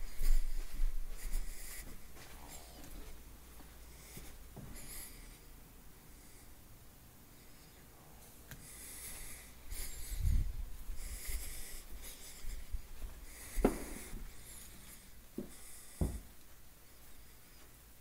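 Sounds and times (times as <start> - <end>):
footsteps on carpet: 0.0 - 4.9, 8.9 - 17.8
rustling near microphone: 0.0 - 5.2, 8.6 - 17.8
breathing: 6.1 - 6.7, 7.3 - 16.3.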